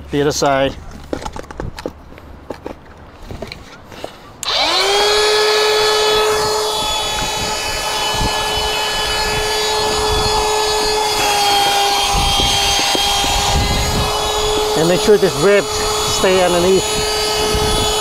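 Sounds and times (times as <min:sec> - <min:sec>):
electric air pump whining: 0:04.4 - 0:18.0.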